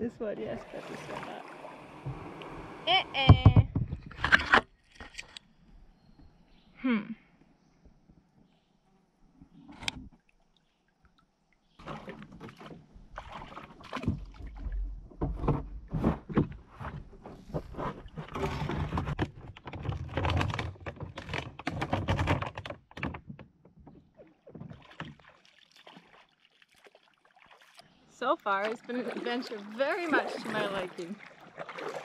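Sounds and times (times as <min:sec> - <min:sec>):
kayak hull knocking on wood: 0:03.2 - 0:04.1.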